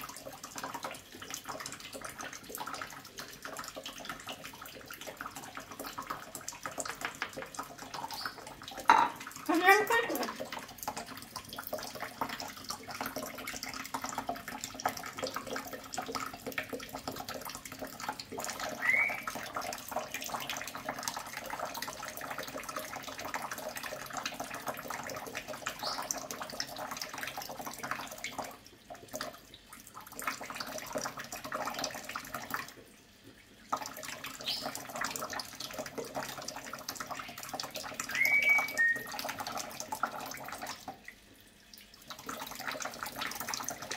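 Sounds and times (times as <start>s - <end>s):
tap water splashing into sink: 0.0s - 43.9s
bird high chirps: 18.8s - 19.3s, 38.1s - 39.1s.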